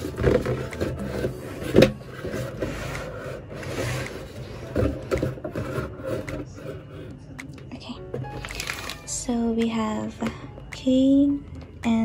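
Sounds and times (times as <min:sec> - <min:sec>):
packaging rustling in cardboard box: 0:08.3 - 0:09.0.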